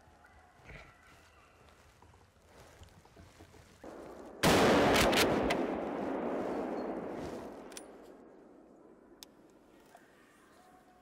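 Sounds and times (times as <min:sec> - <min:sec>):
shotgun shot echoing: 0:04.0 - 0:09.2.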